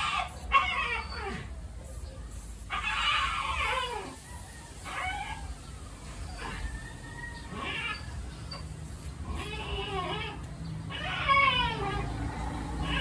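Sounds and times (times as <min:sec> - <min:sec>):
animal whining: 0:00.0 - 0:13.0.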